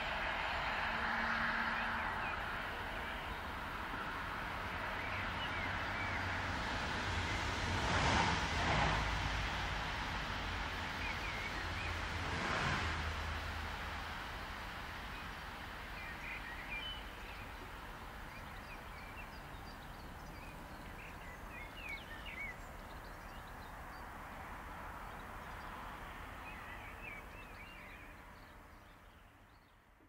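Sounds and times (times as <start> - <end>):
outdoor background hiss: 9.2 - 30.0.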